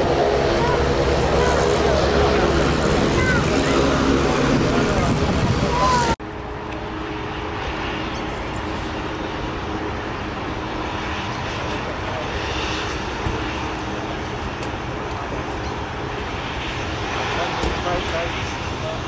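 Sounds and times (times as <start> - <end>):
jet engines rumbling: 0.0 - 19.0.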